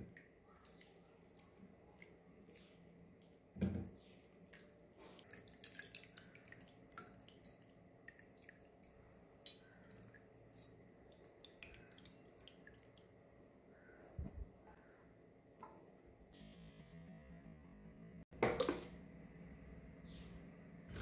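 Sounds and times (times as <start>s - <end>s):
water dripping into bowl: 4.4s - 13.2s
hands squeezing wet pulp: 9.5s - 13.1s.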